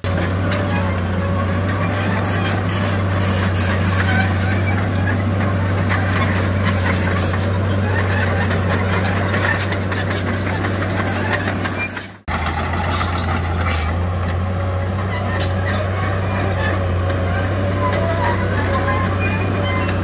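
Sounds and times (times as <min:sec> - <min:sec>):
diesel machinery engine hum: 0:00.0 - 0:20.0
machinery clanking and rattling: 0:00.0 - 0:20.0.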